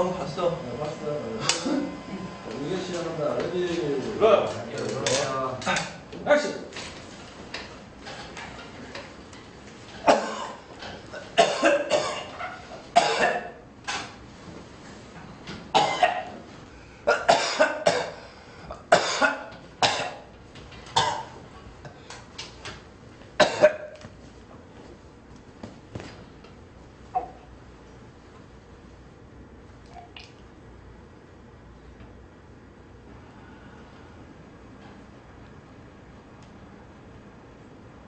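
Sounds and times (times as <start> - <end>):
man coughing: 1.4 - 2.0, 10.0 - 12.4, 13.0 - 13.6, 15.7 - 16.3, 17.0 - 20.3, 21.0 - 21.4, 23.4 - 24.0.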